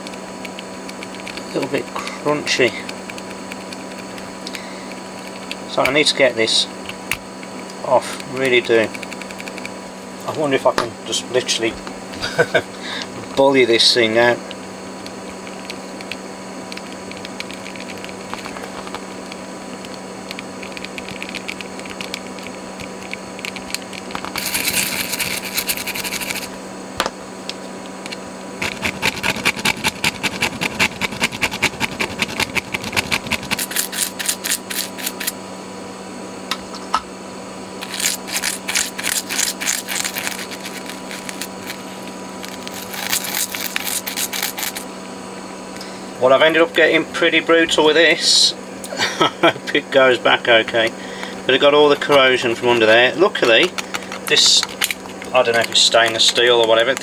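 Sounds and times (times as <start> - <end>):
screwdriver scraping metal: 24.3 - 26.5, 28.6 - 35.4, 37.8 - 44.8.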